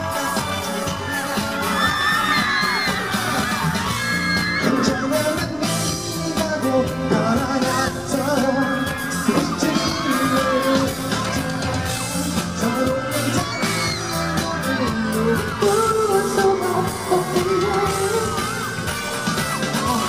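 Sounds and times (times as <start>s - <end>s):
fans yelling: 0.0s - 20.0s
pop singing over backing track: 0.0s - 20.0s.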